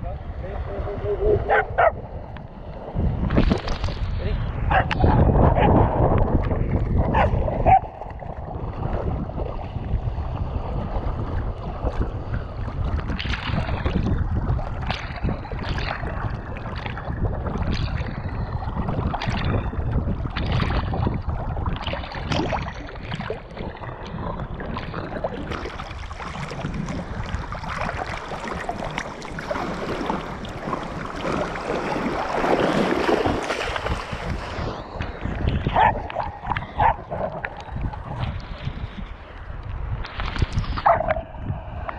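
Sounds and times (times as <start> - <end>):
small waves washing in: 0.0 - 41.9
water splashing: 0.0 - 41.9
wind noise: 0.0 - 41.9.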